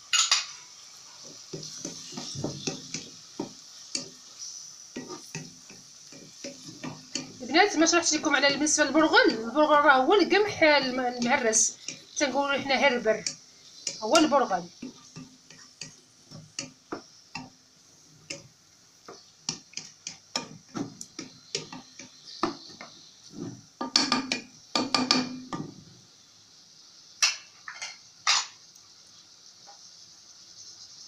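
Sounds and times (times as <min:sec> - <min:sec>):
frying sizzle: 0:00.0 - 0:31.0
wooden spatula scraping a pot: 0:01.1 - 0:17.5, 0:19.1 - 0:24.1.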